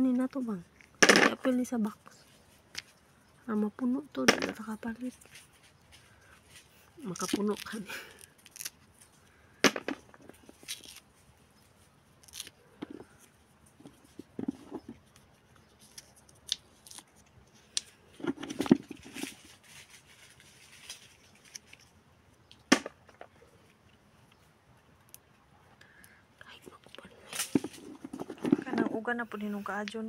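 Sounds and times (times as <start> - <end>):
hulls tearing by hand: 6.1 - 8.9
almonds dropping into plastic basin: 9.6 - 10.6, 22.6 - 23.3.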